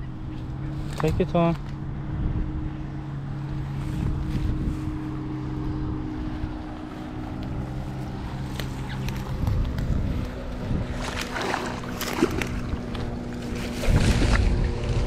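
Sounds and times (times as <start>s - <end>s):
motorboat engine droning: 0.0s - 15.0s
wind rumble on microphone: 0.0s - 15.0s.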